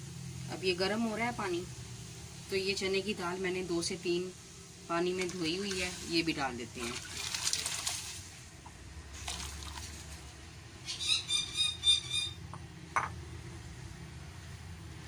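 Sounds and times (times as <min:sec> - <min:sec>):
water pouring into pot: 0:05.0 - 0:08.5, 0:09.1 - 0:10.4.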